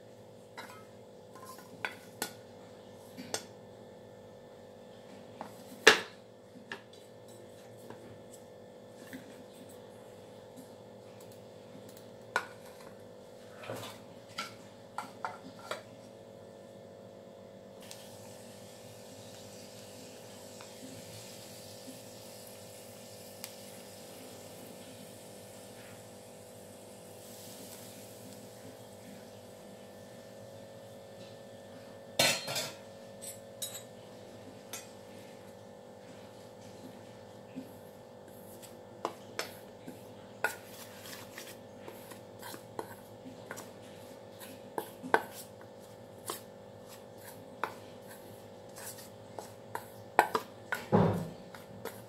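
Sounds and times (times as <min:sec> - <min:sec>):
ghee sizzling in a metal ladle: 0:17.8 - 0:28.7, 0:47.1 - 0:50.9.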